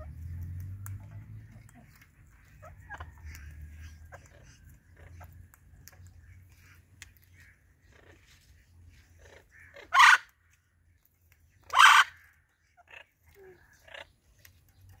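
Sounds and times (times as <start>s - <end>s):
parakeet harsh screeches: 11.7s - 12.2s.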